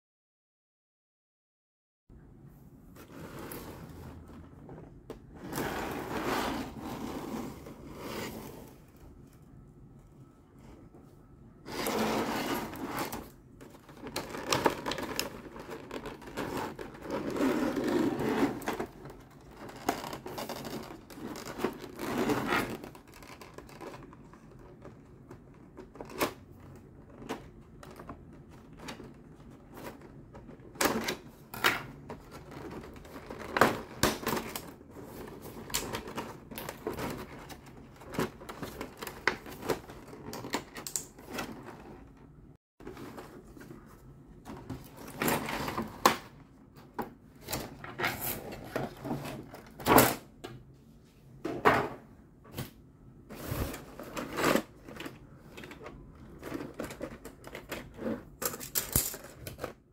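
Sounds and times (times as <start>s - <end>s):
plastic and card crinkling: 13.2s - 17.5s, 18.7s - 30.6s.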